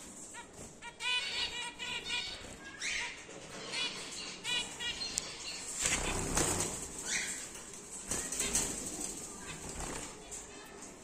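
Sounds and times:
birds chirping: 0:00.0 - 0:10.9.

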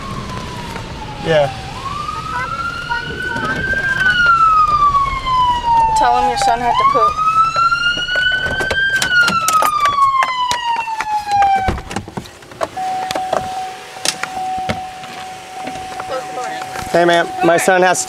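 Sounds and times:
police siren wail: 0:00.0 - 0:12.1, 0:12.7 - 0:18.0
steady single tone: 0:12.8 - 0:17.7.

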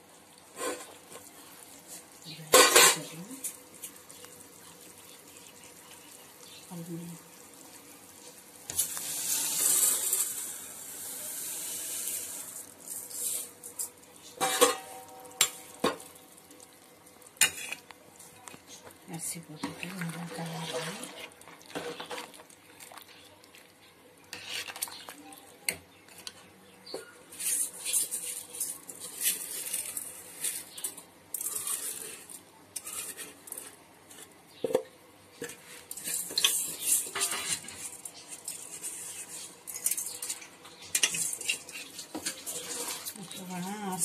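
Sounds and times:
ladle scraping a metal pot: 0:20.2 - 0:22.2, 0:24.3 - 0:25.0, 0:27.0 - 0:34.2, 0:35.4 - 0:40.3, 0:40.9 - 0:43.3.

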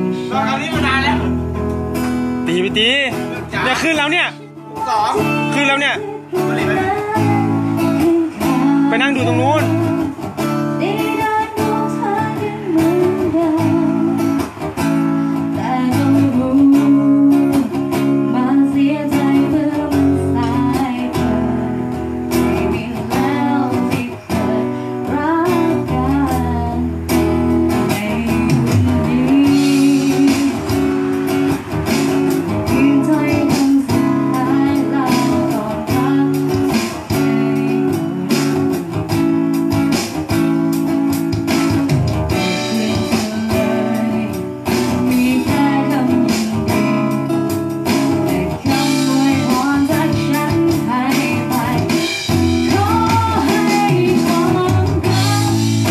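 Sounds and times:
guitar playing: 0:00.0 - 0:55.9
person singing: 0:04.5 - 0:10.1, 0:27.8 - 0:30.9, 0:42.3 - 0:47.2, 0:48.1 - 0:55.9.

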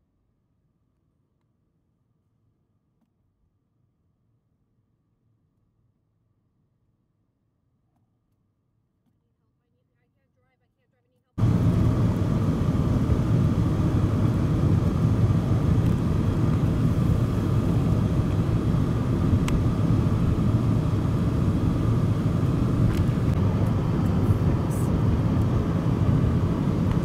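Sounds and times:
jet engines rumbling: 0:11.4 - 0:27.0.

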